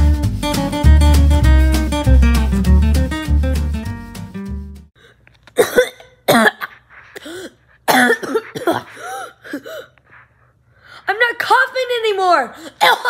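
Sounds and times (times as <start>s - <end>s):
guitar jingle: 0.0s - 4.8s
boy coughing: 5.6s - 10.0s, 12.6s - 13.0s.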